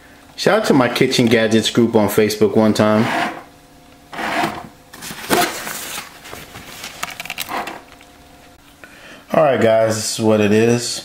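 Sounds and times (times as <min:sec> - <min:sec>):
dispenser motor whine: 0:00.2 - 0:08.6
paper rustling: 0:05.0 - 0:08.0.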